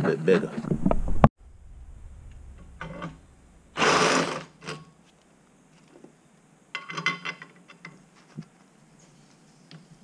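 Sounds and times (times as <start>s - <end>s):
electric drill cutting metal: 3.8s - 4.6s.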